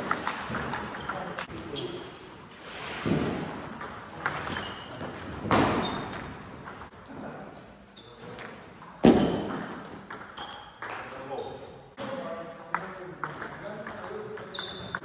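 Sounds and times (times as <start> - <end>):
table tennis ball hits: 0.0 - 1.5, 3.1 - 6.9, 8.4 - 11.1.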